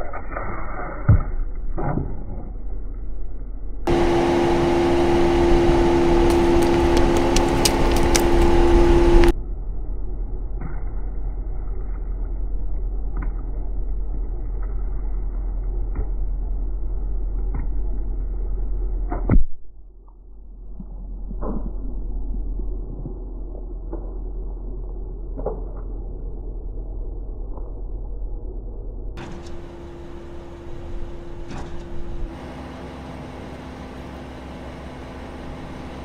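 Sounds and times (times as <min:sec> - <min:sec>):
low hum: 0:00.0 - 0:36.0
car tyre crunching objects: 0:06.1 - 0:09.3
plastic tubes bursting: 0:06.3 - 0:08.6.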